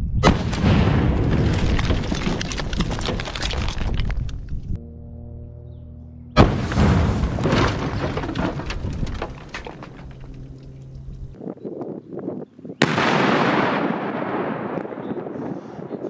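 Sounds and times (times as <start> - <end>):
explosion with rumble: 0.2 - 4.1, 6.4 - 10.3, 12.8 - 15.4
debris clattering down: 0.5 - 4.5, 6.4 - 11.1.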